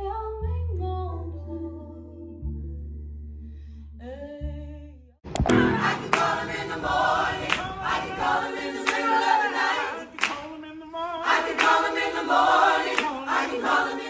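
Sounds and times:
sharp clicks: 0:05.3 - 0:06.3
choir singing: 0:05.4 - 0:14.0.

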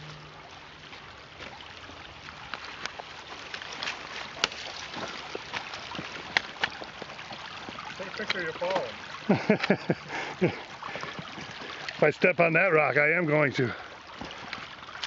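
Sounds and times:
footsteps on dry leaves and stones: 0:00.1 - 0:07.9.

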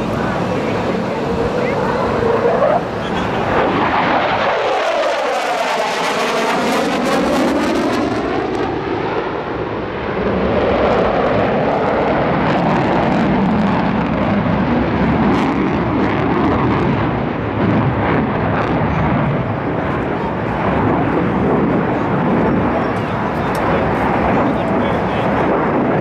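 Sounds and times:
falling sweeping tone: 0:00.0 - 0:06.0
jet engine roar: 0:00.0 - 0:26.0.

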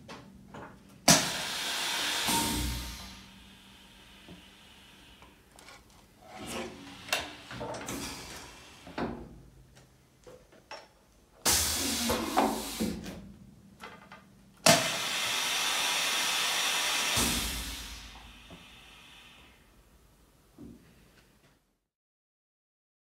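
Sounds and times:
compressed air hissing: 0:01.1 - 0:05.5, 0:06.6 - 0:09.0, 0:11.4 - 0:13.1, 0:14.7 - 0:19.8.

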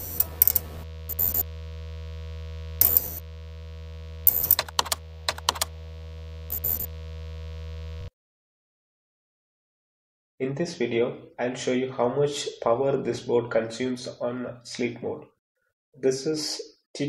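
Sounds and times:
keyboard typing clicks: 0:00.0 - 0:01.4, 0:04.3 - 0:05.7
low synthesizer drone: 0:00.0 - 0:08.1.

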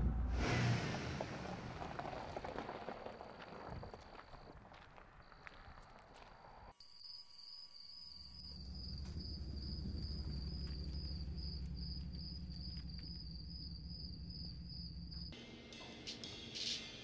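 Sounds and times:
truck engine rumbling: 0:00.0 - 0:03.5, 0:08.6 - 0:15.4
crickets chirping: 0:01.8 - 0:15.4.

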